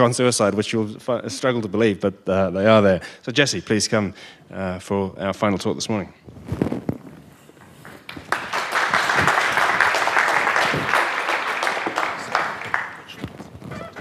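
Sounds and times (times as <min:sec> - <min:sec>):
audience applauding: 0:07.7 - 0:13.3.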